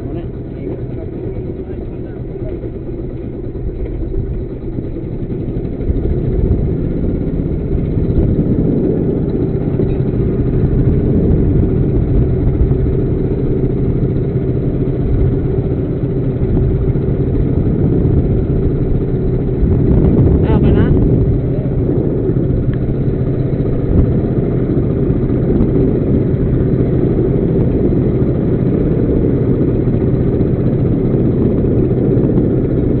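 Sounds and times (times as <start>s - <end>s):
boat engine drone: 0.0s - 33.0s.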